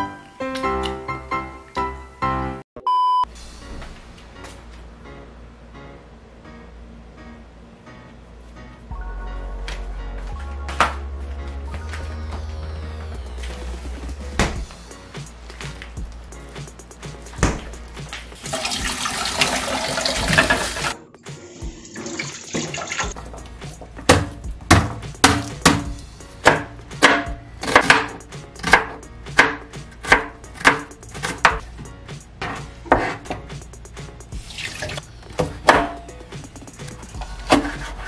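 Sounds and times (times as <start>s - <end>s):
knife chopping on plastic board: 24.0s - 31.6s, 32.4s - 33.6s, 37.5s - 38.0s.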